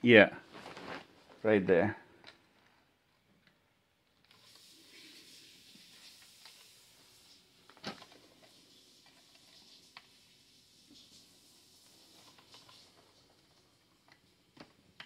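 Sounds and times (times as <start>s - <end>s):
faint hiss: 4.2s - 15.0s.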